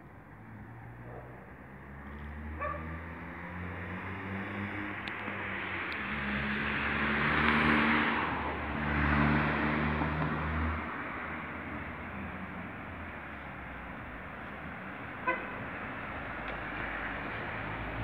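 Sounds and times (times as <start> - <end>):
car driving past: 0.4 - 11.0.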